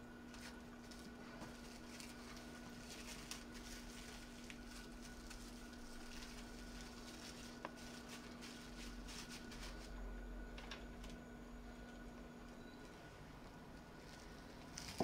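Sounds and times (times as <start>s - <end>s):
faint steady hum: 0.0s - 15.0s
cling wrap crinkling: 0.3s - 10.0s, 13.8s - 15.0s.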